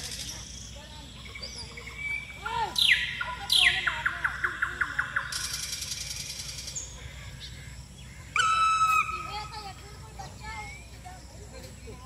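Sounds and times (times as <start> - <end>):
bird trill: 0.0 - 11.5
small birds calling: 0.0 - 12.0
high buzzy bird rattle: 4.9 - 6.8.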